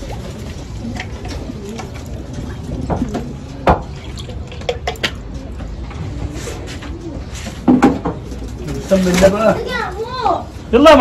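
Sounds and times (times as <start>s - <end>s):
pigeons cooing: 0.0s - 4.2s.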